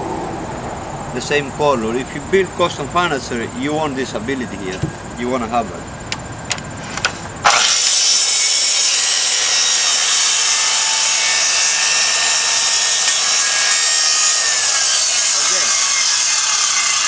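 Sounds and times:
circular saw cutting wood: 7.4s - 17.0s.

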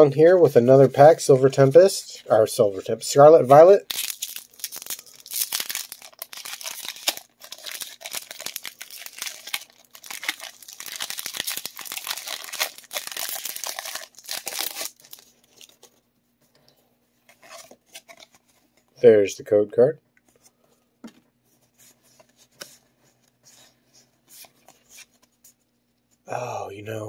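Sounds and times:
foil wrapper tearing: 3.8s - 15.7s
foil wrapper crinkling: 3.8s - 15.9s.

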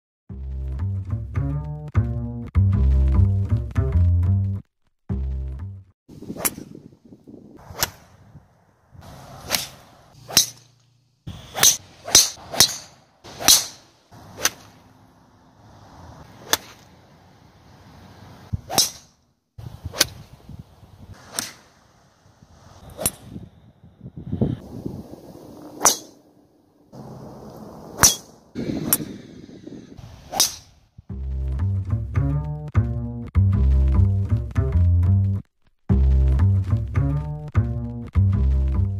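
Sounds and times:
outdoor background noise: 5.0s - 38.9s
golf clubs striking balls: 9.0s - 15.0s, 16.3s - 17.0s, 18.5s - 19.2s, 19.8s - 20.3s, 21.2s - 21.8s, 22.8s - 23.4s, 25.8s - 26.3s, 28.0s - 30.7s.

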